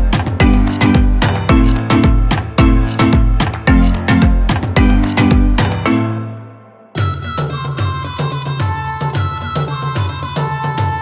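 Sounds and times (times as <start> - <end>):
steady drum beat: 0.0 - 5.9.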